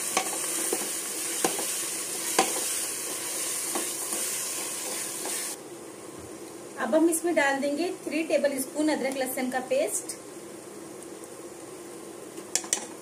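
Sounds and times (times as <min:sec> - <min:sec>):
meat and onions sizzling in oil: 0:00.0 - 0:05.6.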